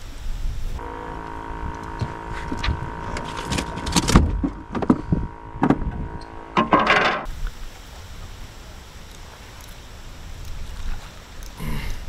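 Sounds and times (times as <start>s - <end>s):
steady motor hum: 0.8s - 7.3s
gear knocking and clattering: 1.7s - 7.3s.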